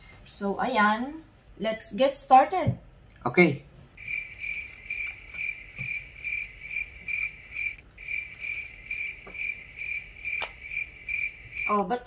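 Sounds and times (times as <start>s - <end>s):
crickets chirping: 4.0s - 12.0s.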